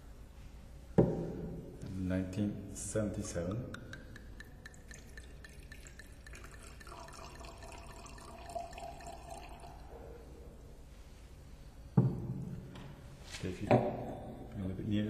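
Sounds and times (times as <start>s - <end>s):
wine pouring into a glass: 3.2s - 10.1s.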